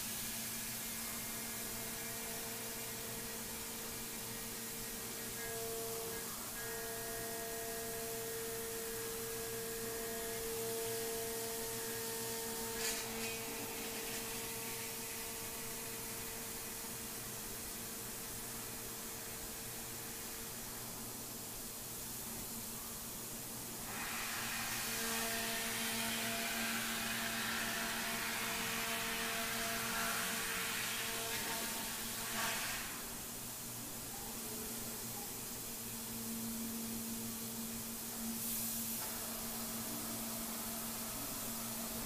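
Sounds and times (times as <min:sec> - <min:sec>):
cnc router whine: 0:00.6 - 0:17.6, 0:23.9 - 0:33.0.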